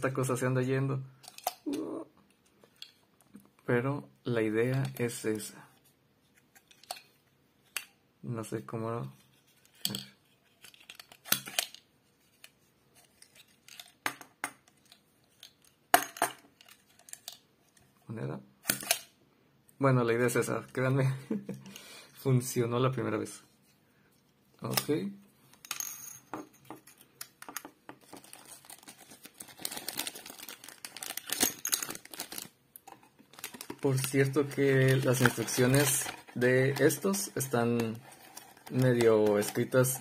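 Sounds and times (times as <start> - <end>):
plastic bag crinkling: 28.0 - 40.0.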